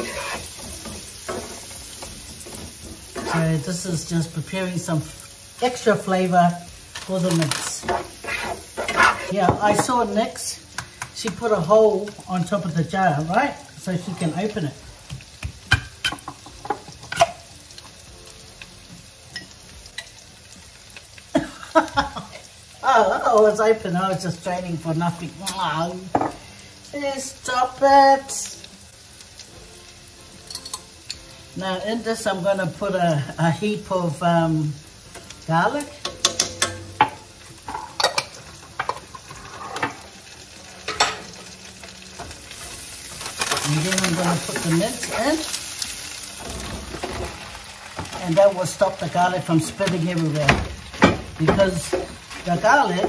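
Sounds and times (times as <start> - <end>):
utensil scraping a pan: 0.0 - 3.7, 7.0 - 9.9, 37.6 - 40.2
onions sizzling in a pan: 0.0 - 53.0.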